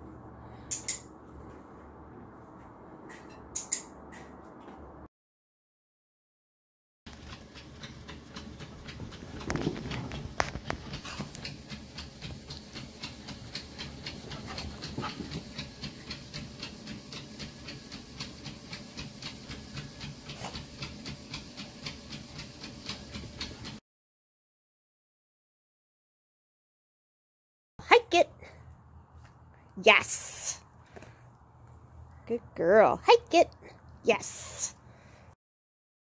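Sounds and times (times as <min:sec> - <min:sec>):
dog panting: 0:07.3 - 0:21.9.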